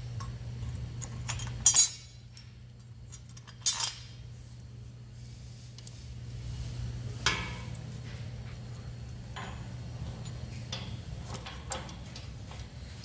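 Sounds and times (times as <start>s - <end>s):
steady low hum: 0.0s - 13.0s
metal clanks and knocks: 9.3s - 12.7s.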